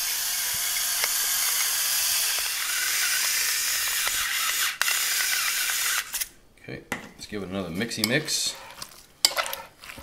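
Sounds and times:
electric grinders whirring: 0.0s - 6.3s.

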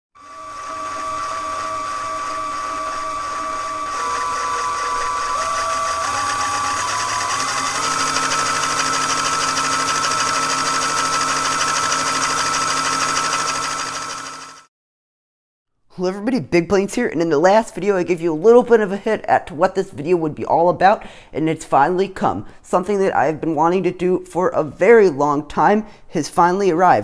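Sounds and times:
small electric motor whirring: 0.2s - 14.7s.

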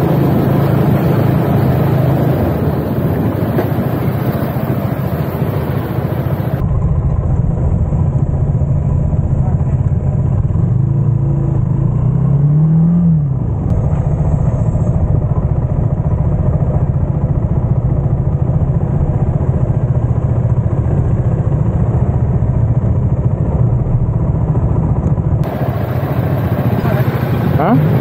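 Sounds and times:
low rushing noise: 0.0s - 11.2s.

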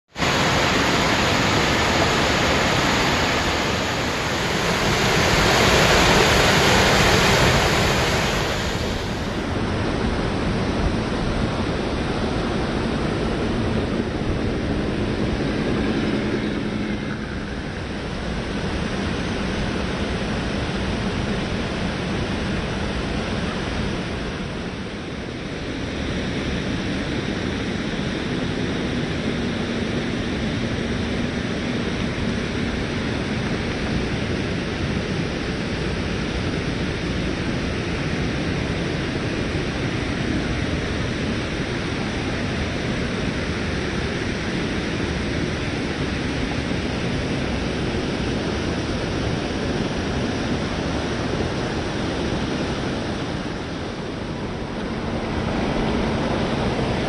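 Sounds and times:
rushing stream water: 0.2s - 9.5s.

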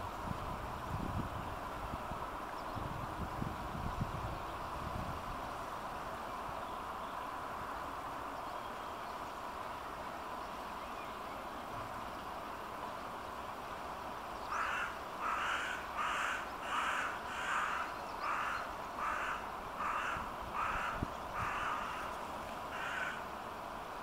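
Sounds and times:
crow cawing: 14.5s - 22.1s, 22.7s - 23.3s.

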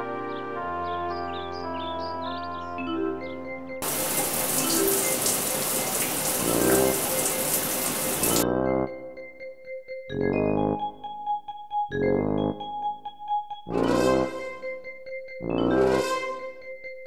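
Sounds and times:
background music: 0.0s - 17.0s
shower water spraying: 3.8s - 8.4s.

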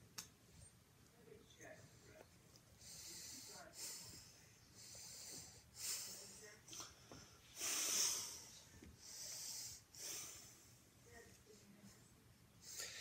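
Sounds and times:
close noisy breathing: 2.7s - 10.9s, 12.6s - 13.0s.

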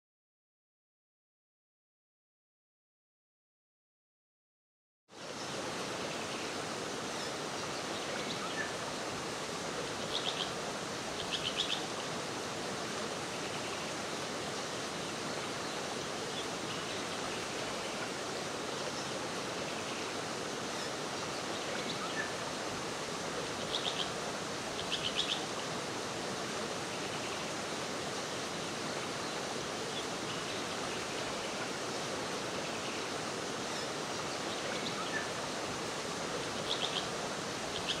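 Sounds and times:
rainforest rushing hiss: 5.1s - 38.0s
bird pulsed call: 10.0s - 10.6s, 11.2s - 11.9s, 23.6s - 24.2s, 24.8s - 25.5s, 36.5s - 38.0s.

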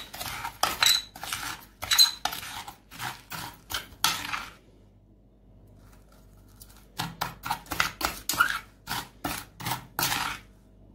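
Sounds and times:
metal spoon scraping chalk on glass: 0.0s - 4.5s, 7.4s - 10.5s.

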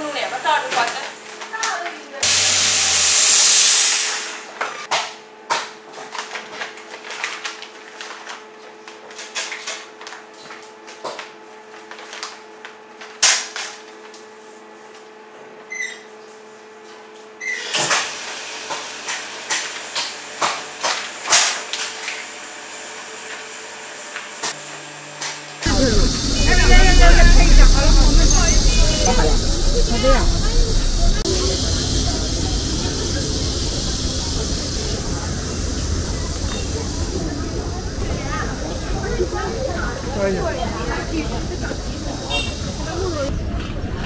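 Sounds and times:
vacuum pump humming: 25.6s - 43.2s.

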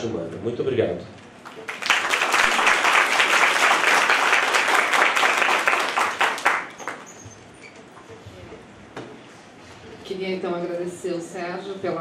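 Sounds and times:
audience applause: 1.4s - 7.2s.

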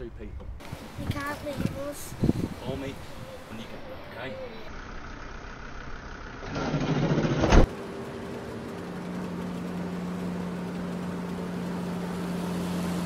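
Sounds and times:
engine hum with low tone: 3.2s - 13.0s.

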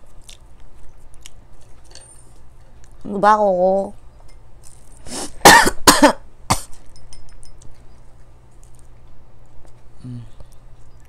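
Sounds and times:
person coughing: 5.4s - 6.8s.

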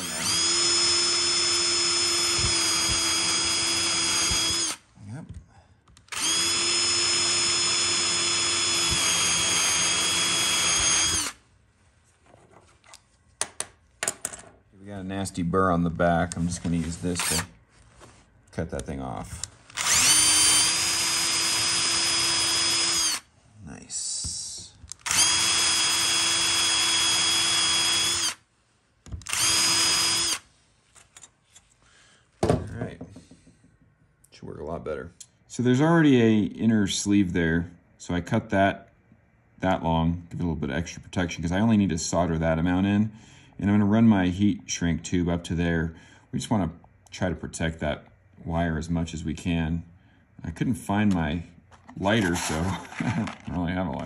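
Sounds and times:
electric drill drilling metal: 0.0s - 4.8s, 6.1s - 11.4s, 19.7s - 23.3s, 25.0s - 28.4s, 29.2s - 30.4s.

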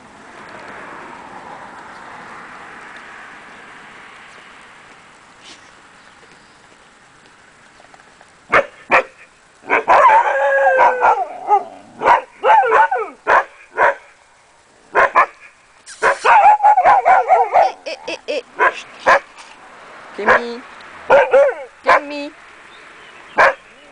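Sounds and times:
puppies yapping: 15.0s - 18.0s, 21.1s - 21.8s.

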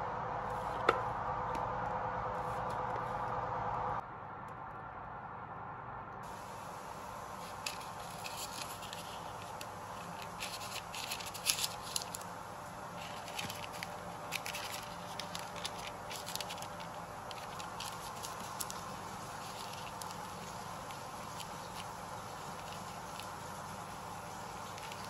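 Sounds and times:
steady background hum: 0.0s - 25.0s
parchment crinkling: 6.3s - 25.0s.

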